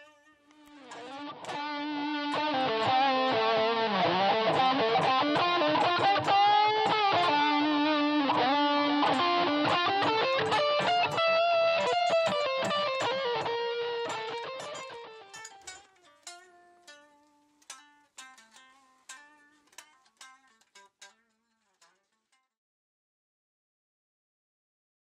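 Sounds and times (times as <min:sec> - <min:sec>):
electric guitar solo: 0:00.0 - 0:19.6.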